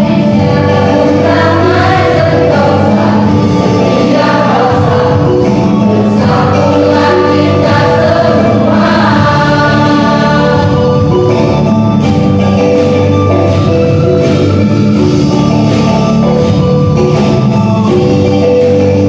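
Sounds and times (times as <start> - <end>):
choir singing in parts: 0.0 - 11.7.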